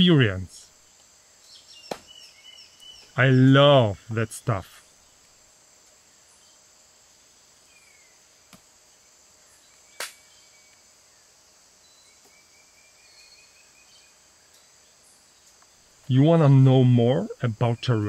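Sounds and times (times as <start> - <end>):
insect chorus: 0.0 - 18.0
sharp click: 10.0 - 10.2.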